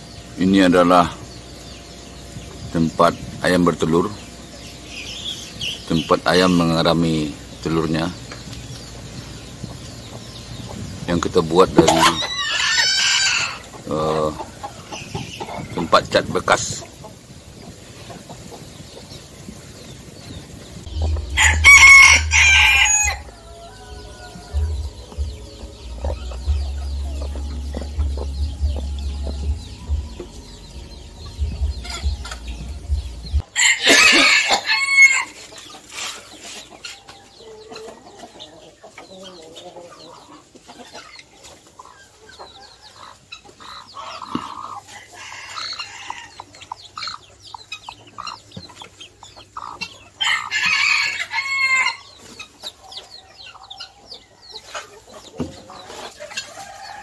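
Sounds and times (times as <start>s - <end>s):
chicken clucking: 0.0s - 57.0s
rooster crowing: 12.1s - 13.7s, 21.0s - 25.0s, 33.5s - 35.4s, 50.2s - 52.1s, 56.5s - 57.0s
low rumble: 20.7s - 33.5s.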